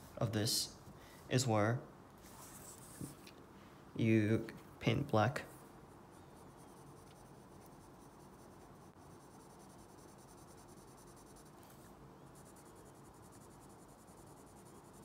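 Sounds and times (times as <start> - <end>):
pencil scratching on paper: 2.2 - 3.2, 6.2 - 15.0.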